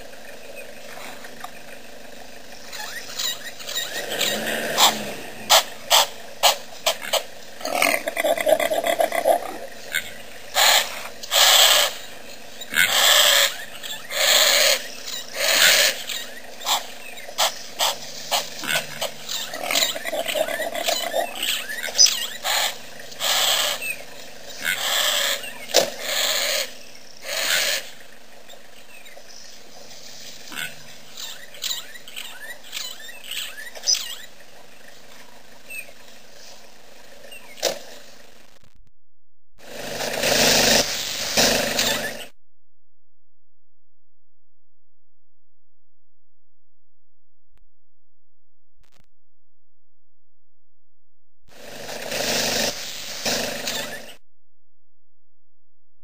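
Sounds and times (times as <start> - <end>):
elephant blowing: 3.8 - 6.1.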